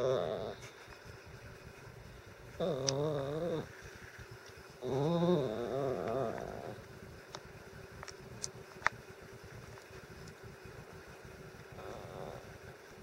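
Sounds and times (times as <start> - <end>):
small dog whining: 0.0 - 0.6, 2.6 - 3.7, 11.8 - 12.4.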